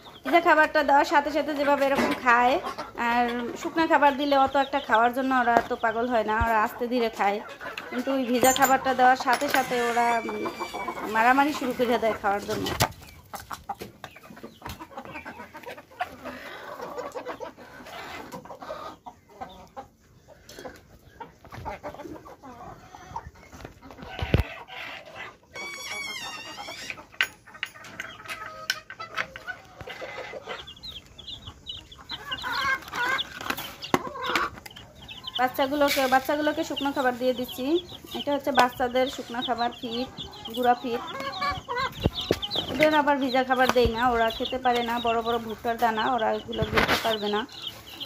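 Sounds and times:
chickens clucking: 0:00.0 - 0:48.0
chicks peeping: 0:00.0 - 0:48.0
beaks tapping on bowls: 0:07.8 - 0:11.7, 0:25.6 - 0:48.0.

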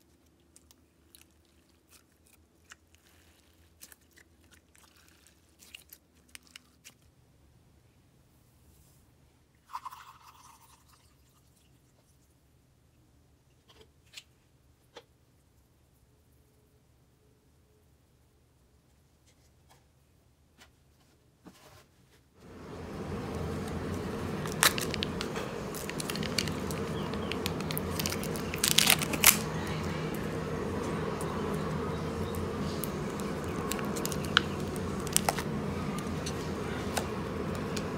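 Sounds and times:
drink pouring into bowl: 0:09.7 - 0:11.4
steady low hum: 0:22.4 - 0:37.9.

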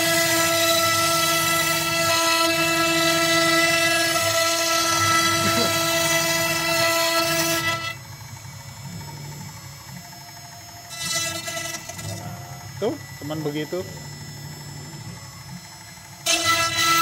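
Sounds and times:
hissing rasp of cutting wood: 0:00.0 - 0:08.0
router spindle whining: 0:00.0 - 0:17.0.

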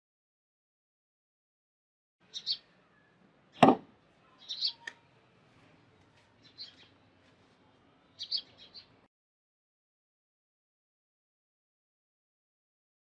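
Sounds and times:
birds chirping: 0:02.2 - 0:09.1
cleaver chopping into wood: 0:03.6 - 0:03.9.

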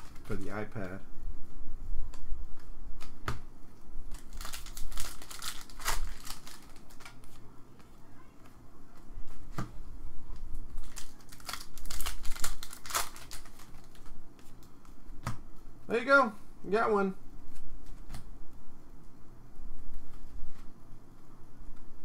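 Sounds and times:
foil wrapper crinkling: 0:00.0 - 0:00.5, 0:04.1 - 0:07.4, 0:10.7 - 0:14.7
cards rustling: 0:00.0 - 0:01.0, 0:04.1 - 0:09.7, 0:10.4 - 0:15.2.

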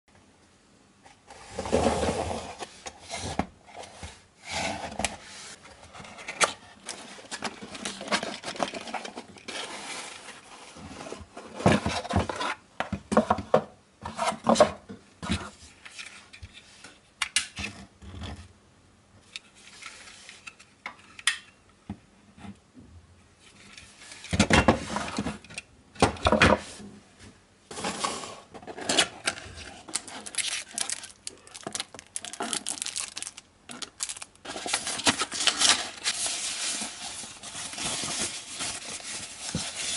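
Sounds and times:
cardboard boxes sliding on table: 0:01.3 - 0:05.6, 0:27.7 - 0:28.9.

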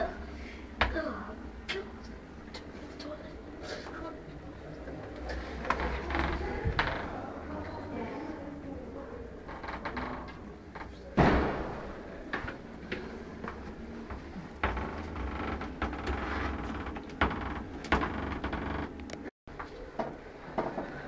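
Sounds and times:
door banging: 0:11.2 - 0:12.5.

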